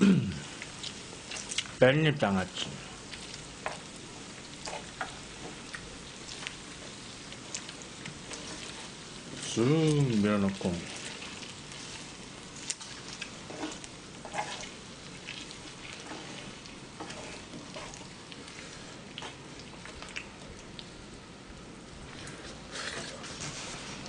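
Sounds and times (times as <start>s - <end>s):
meat sizzling on a griddle: 0.4s - 20.0s
chopsticks scraping a griddle: 4.6s - 18.6s.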